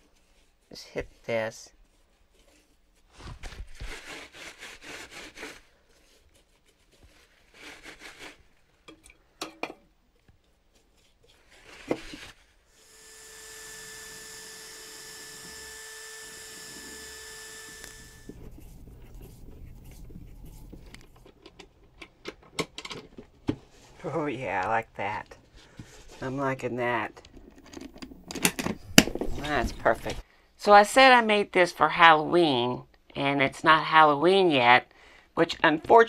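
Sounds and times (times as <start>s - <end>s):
paintbrush scraping on wood: 1.8s - 8.6s, 17.7s - 21.3s
cordless drill running: 12.7s - 18.5s.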